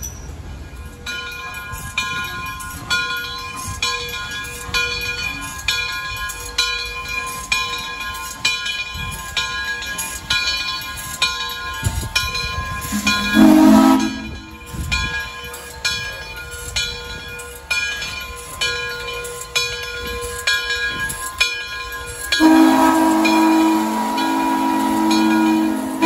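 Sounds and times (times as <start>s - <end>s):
locomotive bell ringing: 0.0s - 26.0s
steam whistle: 12.8s - 14.6s, 22.4s - 26.0s.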